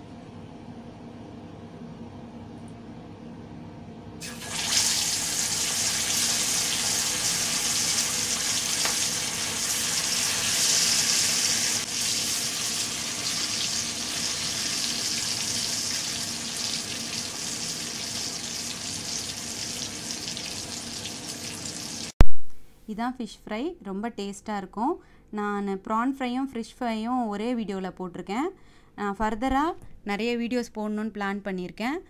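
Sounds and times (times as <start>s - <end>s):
fish sizzling in hot oil: 4.2s - 22.1s.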